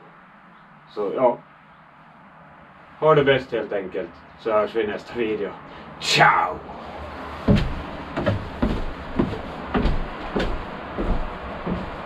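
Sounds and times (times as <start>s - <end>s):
dull heavy thumps with low boom: 7.5s - 12.0s.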